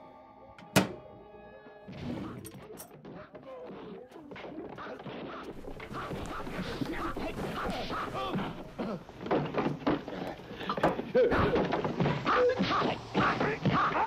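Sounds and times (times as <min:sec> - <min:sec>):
knocks and thuds: 0:00.6 - 0:01.1
voices: 0:02.2 - 0:14.0.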